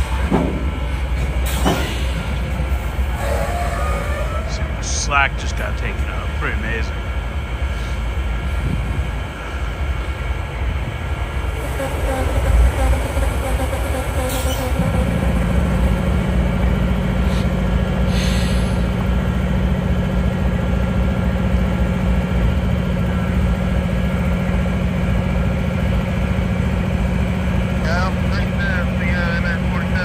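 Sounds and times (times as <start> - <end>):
engine drone: 0.0 - 30.0
locomotive engine rumble: 0.0 - 30.0
short hisses: 17.2 - 18.9.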